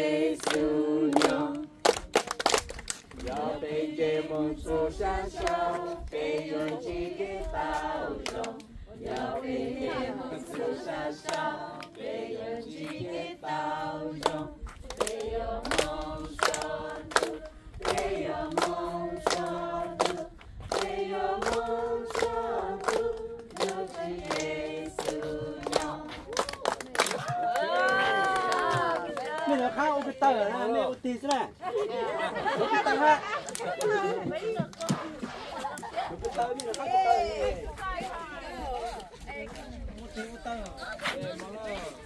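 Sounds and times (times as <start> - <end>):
hands clapping in rhythm: 0.2 - 3.6, 5.4 - 9.3, 10.5 - 12.0, 14.0 - 31.6, 32.9 - 38.0.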